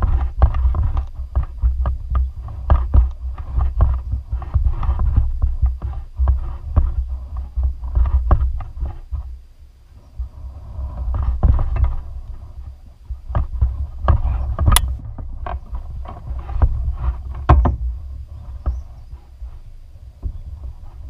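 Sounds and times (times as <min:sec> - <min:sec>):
thumping rumble on microphone: 0:00.0 - 0:21.0.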